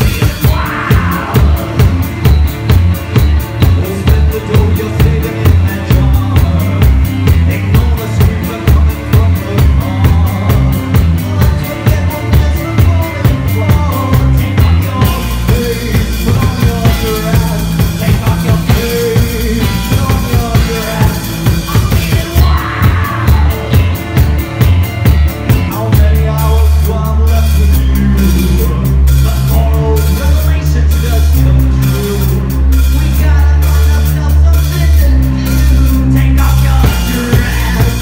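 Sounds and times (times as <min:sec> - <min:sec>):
drum kit beating fast rhythm: 0:00.0 - 0:38.0
guitar: 0:00.0 - 0:38.0.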